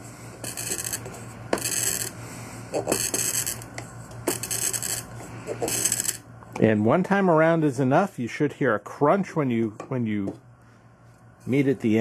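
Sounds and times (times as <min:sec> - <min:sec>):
glass cutter scoring bottle: 0:02.8 - 0:03.7.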